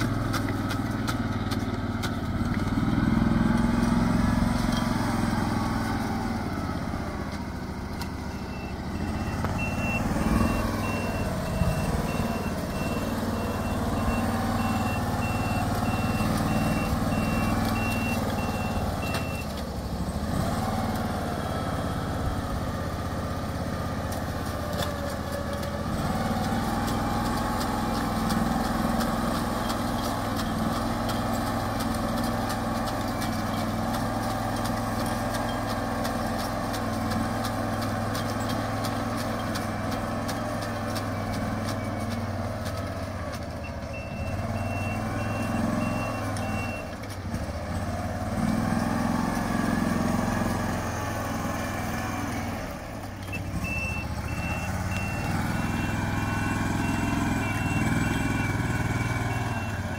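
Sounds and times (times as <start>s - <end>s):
farm machine engine running: 0.0s - 59.9s
high-pitched beeping alarm: 8.3s - 19.5s, 53.3s - 59.9s.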